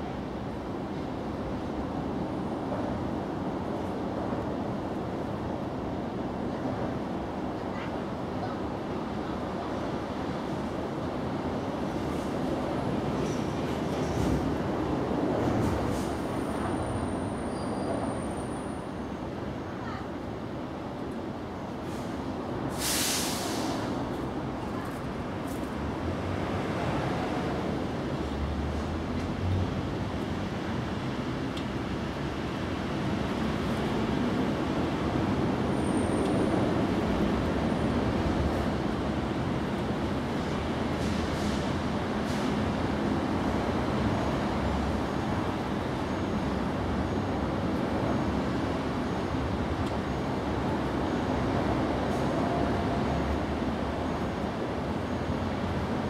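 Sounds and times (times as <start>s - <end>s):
outdoor rumble and hiss: 0.0s - 56.0s
hiss: 21.8s - 24.0s.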